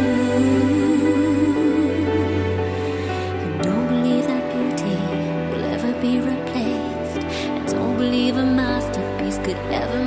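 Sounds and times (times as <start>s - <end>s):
slow music with held notes: 0.0s - 10.0s.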